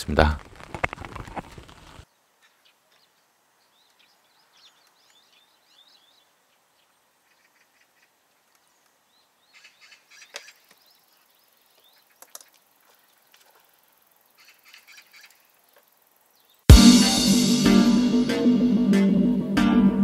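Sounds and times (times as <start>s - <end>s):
small birds chirping: 1.8s - 16.7s.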